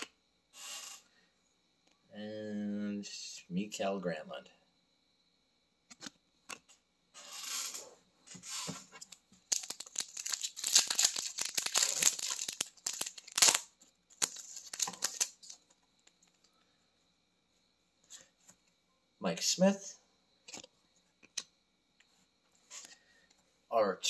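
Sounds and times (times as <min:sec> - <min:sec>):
wrapper tearing and crinkling: 0:09.5 - 0:15.6.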